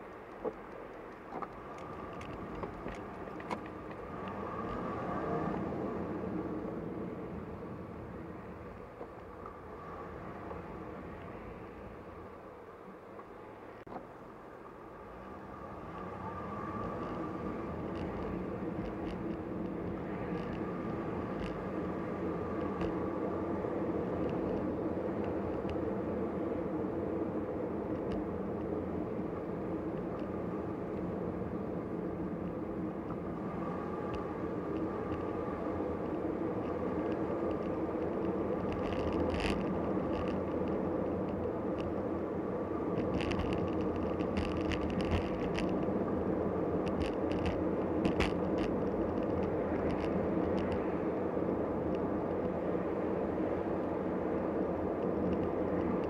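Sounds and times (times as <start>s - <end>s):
faint clicks: 0.0s - 4.8s
car engine and tyre hum: 0.0s - 56.0s.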